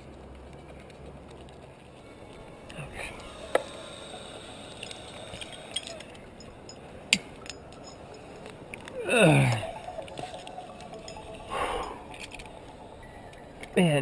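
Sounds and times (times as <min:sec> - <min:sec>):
climbing hardware clinking: 0:04.8 - 0:09.0.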